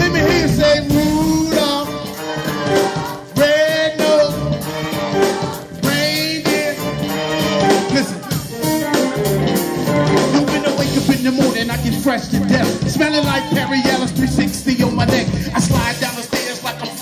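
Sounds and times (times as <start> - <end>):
man singing into a microphone: 0.0 - 2.0, 10.2 - 17.0
electric keyboard: 0.0 - 17.0.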